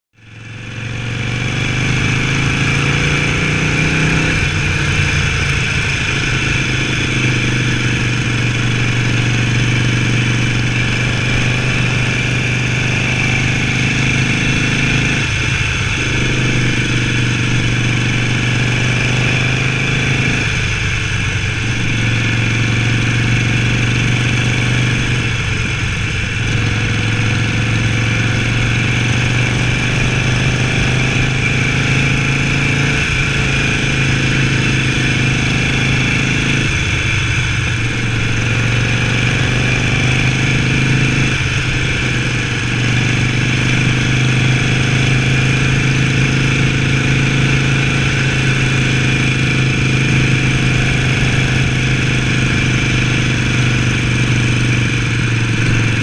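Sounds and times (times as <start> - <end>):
motorcycle engine running: 0.2 - 56.0.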